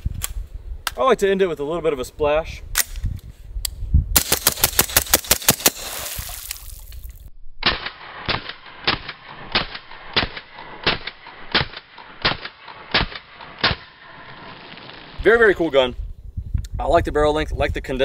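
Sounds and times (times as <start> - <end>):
suppressed gunshots: 7.6 - 15.2.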